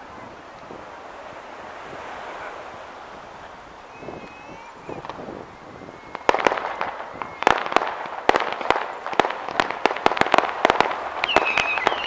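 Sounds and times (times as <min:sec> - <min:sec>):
fireworks crackling and popping: 0:00.0 - 0:12.0
high steady whistle: 0:03.8 - 0:08.2, 0:11.2 - 0:12.0.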